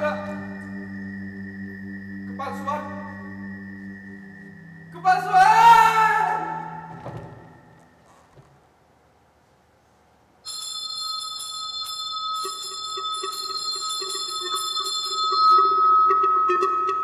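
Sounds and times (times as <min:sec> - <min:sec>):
low pulsing tone: 0:00.0 - 0:05.4
school bell ringing: 0:10.4 - 0:17.0.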